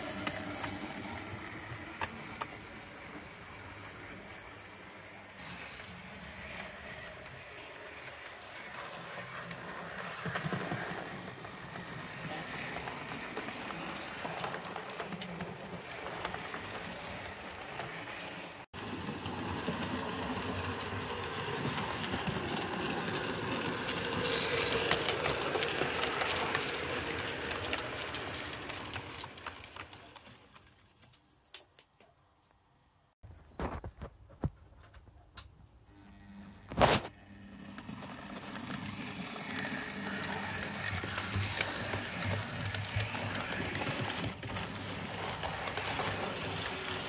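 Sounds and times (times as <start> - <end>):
model train motor hum: 0.0 - 30.2, 37.2 - 47.0
wheels clicking over rail joints: 0.0 - 31.6, 36.7 - 47.0.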